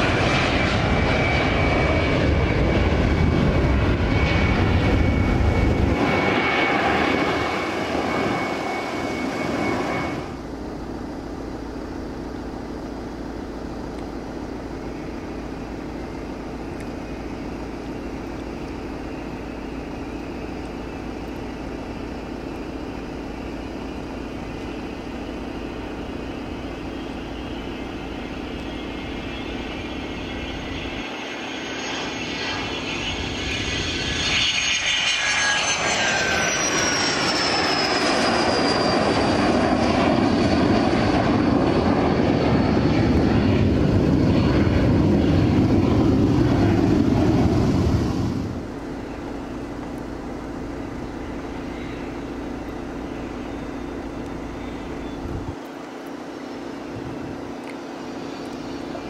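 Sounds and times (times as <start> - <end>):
jet passing with falling whistle: 0.0 - 10.4, 22.8 - 49.6, 50.6 - 59.0
jet rumble climbing away: 0.0 - 55.7
jet engines whining: 0.0 - 59.0.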